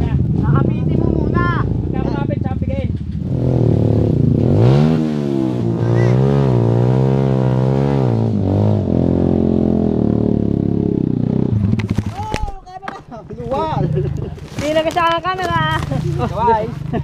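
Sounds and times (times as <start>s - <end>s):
motorcycle engine revving: 0.0s - 12.1s.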